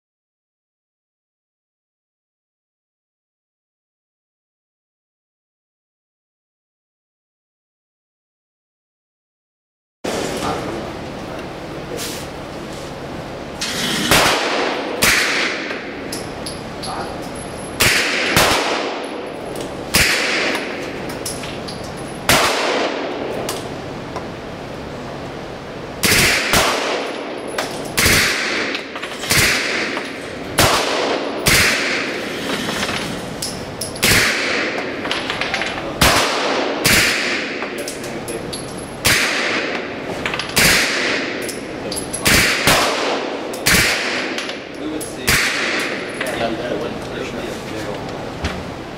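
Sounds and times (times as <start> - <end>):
gunshots with ringing echo: 14.0 - 16.1, 17.8 - 20.9, 22.2 - 23.5, 26.0 - 32.4, 34.0 - 37.8, 39.0 - 40.0, 40.6 - 41.5, 42.2 - 46.2.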